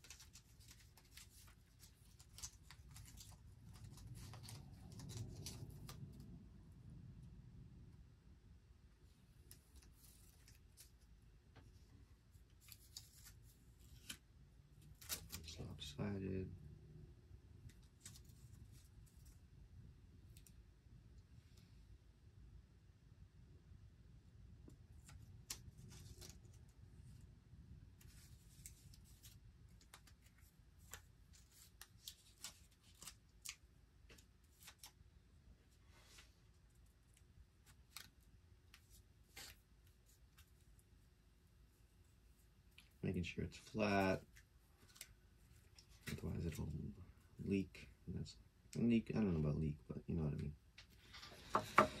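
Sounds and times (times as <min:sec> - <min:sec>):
tape crinkling: 0:00.0 - 0:06.4, 0:09.4 - 0:11.2, 0:12.4 - 0:15.8, 0:25.0 - 0:27.2, 0:28.0 - 0:35.0, 0:36.6 - 0:40.9, 0:43.7 - 0:46.7.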